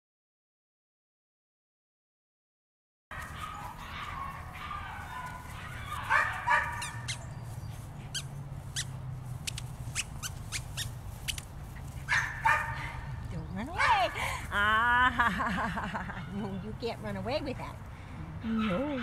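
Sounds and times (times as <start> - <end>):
light sharp clicks: 9.4 - 10.1.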